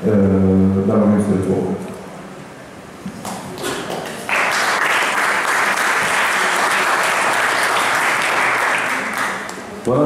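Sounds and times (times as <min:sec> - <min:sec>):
audience applauding: 0:03.3 - 0:09.8.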